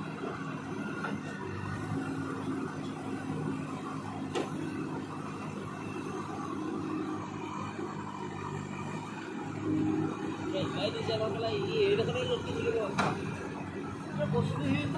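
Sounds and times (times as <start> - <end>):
backhoe diesel engine running: 0.0 - 14.9.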